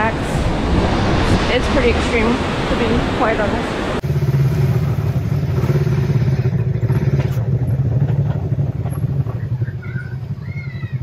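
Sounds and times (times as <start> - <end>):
off-road vehicle engine running: 2.8 - 11.0.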